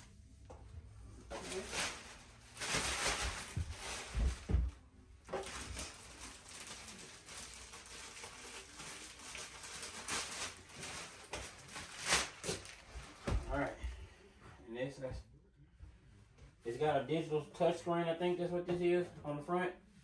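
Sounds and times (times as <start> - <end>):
loud crinkle: 1.3 - 4.5, 5.4 - 12.9
packing material rustling: 1.3 - 13.3.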